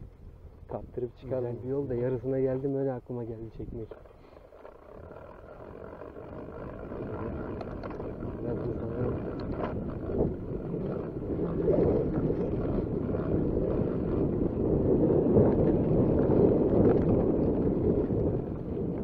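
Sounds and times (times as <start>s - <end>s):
wind buffeting microphone: 0.0s - 19.0s
faint clicks: 3.8s - 10.2s.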